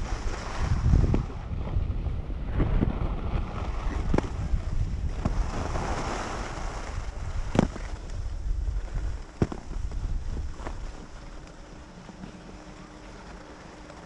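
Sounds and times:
wind buffeting microphone: 0:00.0 - 0:14.0
skis hissing over snow: 0:05.3 - 0:07.0.

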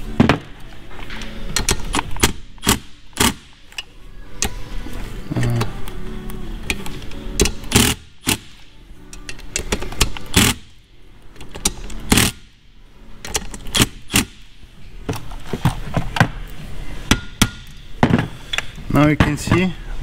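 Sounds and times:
impact driver hammering bolts: 0:01.6 - 0:03.5, 0:07.3 - 0:08.5.

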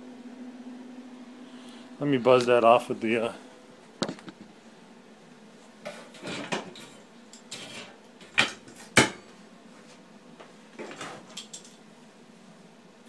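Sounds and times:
metal clanks and scrapes: 0:05.9 - 0:08.0.

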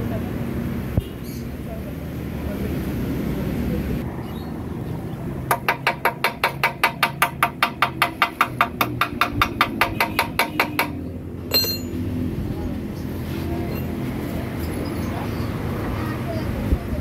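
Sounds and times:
hammer striking steel: 0:05.5 - 0:12.1.

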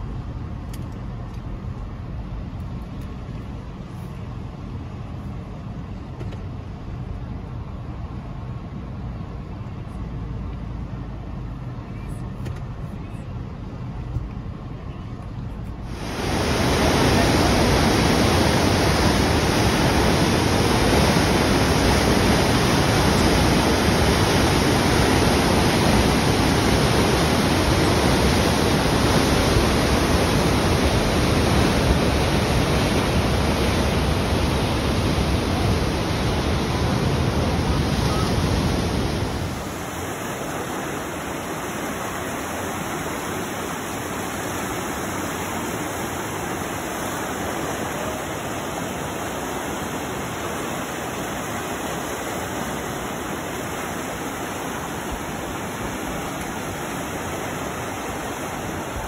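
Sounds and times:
river white water rushing: 0:15.8 - 0:59.0.

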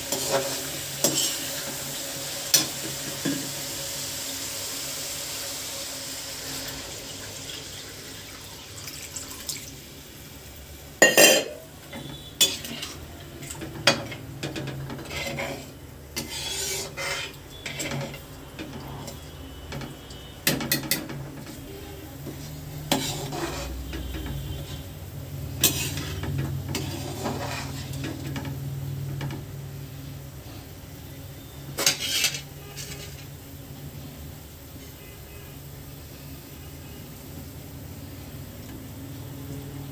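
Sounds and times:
steel spoon scraping pan: 0:00.0 - 0:03.5, 0:11.0 - 0:28.6, 0:31.7 - 0:33.4
water sizzling in hot pan: 0:00.0 - 0:39.9.

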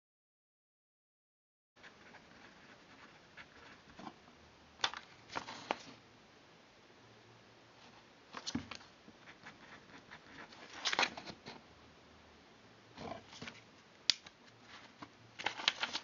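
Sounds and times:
paper rustling: 0:04.8 - 0:06.0, 0:10.4 - 0:11.6, 0:14.6 - 0:16.0.

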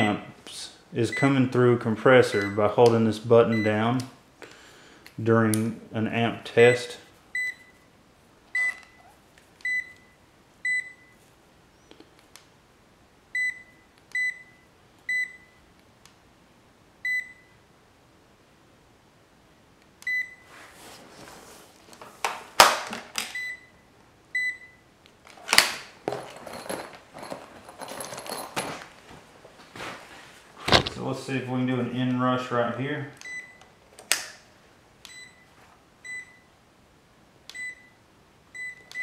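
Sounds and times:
handling rubbing and knocks: 0:25.3 - 0:31.2.

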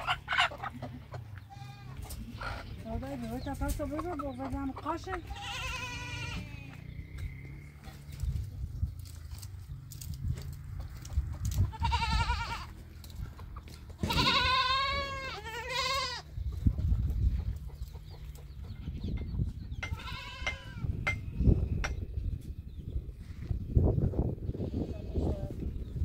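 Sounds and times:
goats bleating: 0:00.0 - 0:02.7, 0:04.8 - 0:06.9, 0:11.7 - 0:12.9, 0:14.0 - 0:16.3, 0:19.8 - 0:20.8.

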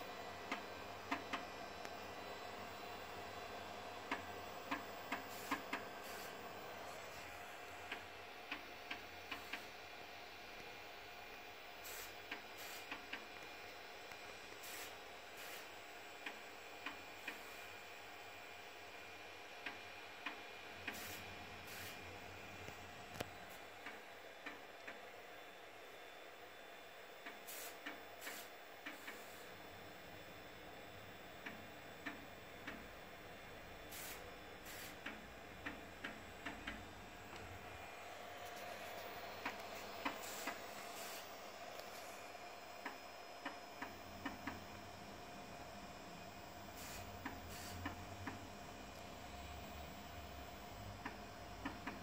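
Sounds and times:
faint steady hum: 0:00.0 - 0:52.0
short hissing bursts: 0:05.3 - 0:06.3, 0:11.8 - 0:12.9, 0:14.6 - 0:15.7, 0:20.9 - 0:22.0, 0:27.4 - 0:29.4, 0:33.9 - 0:35.0, 0:39.8 - 0:41.3, 0:46.8 - 0:47.8.

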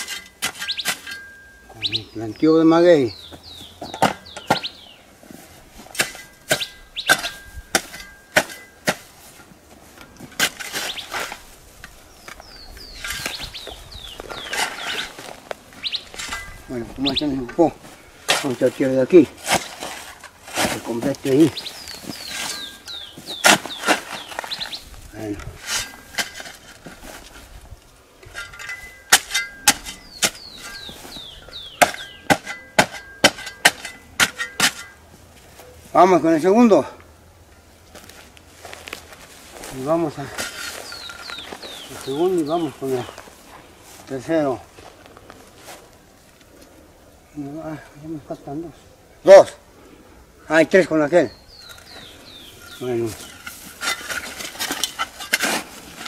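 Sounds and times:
birds chirping: 0:00.0 - 0:09.0, 0:09.8 - 0:26.6, 0:28.3 - 0:38.0, 0:39.6 - 0:56.0
shovel chopping hard soil: 0:05.9 - 0:09.1, 0:10.2 - 0:11.5, 0:18.3 - 0:27.0, 0:28.3 - 0:35.0, 0:52.4 - 0:56.0.

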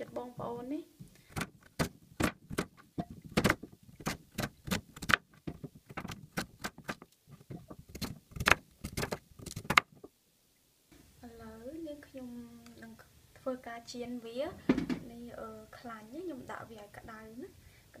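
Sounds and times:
knife chopping on plastic board: 0:01.3 - 0:09.9.

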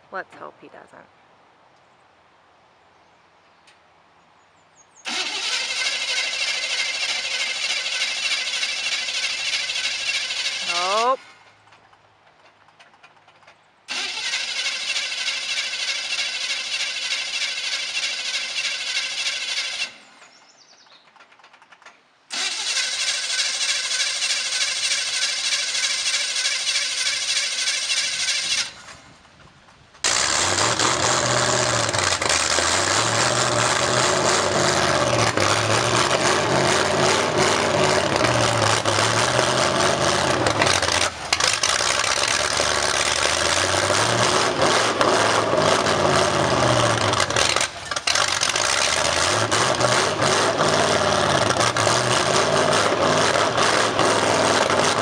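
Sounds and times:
truck engine revving: 0:05.1 - 0:11.6, 0:13.9 - 0:20.3, 0:21.1 - 0:29.1, 0:30.0 - 0:55.0
engine cranking: 0:05.1 - 0:55.0.

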